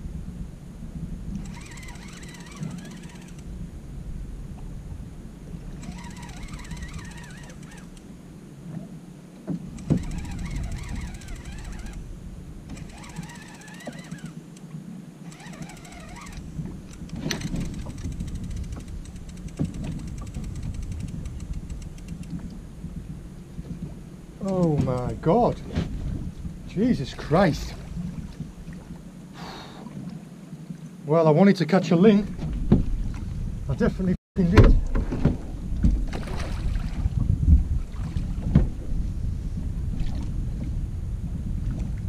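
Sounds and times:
fishing reel cranking: 0:01.3 - 0:03.5, 0:05.7 - 0:08.0, 0:09.8 - 0:12.0, 0:12.7 - 0:14.4, 0:15.3 - 0:22.3.

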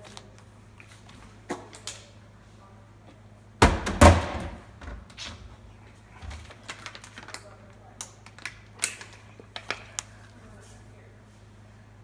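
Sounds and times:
plastic bottle landing thuds: 0:03.6 - 0:04.7.

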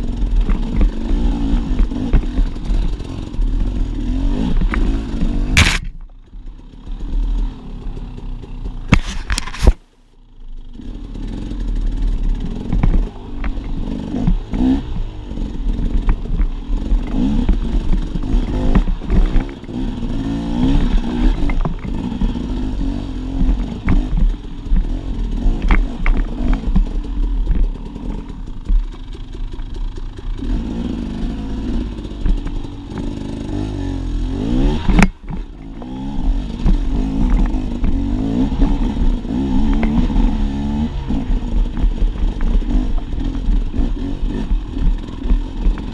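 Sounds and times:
dirt bike engine revving: 0:00.0 - 0:09.8, 0:10.6 - 0:45.9
bike clattering and knocking: 0:12.4 - 0:15.2, 0:15.8 - 0:19.8, 0:23.3 - 0:27.8.

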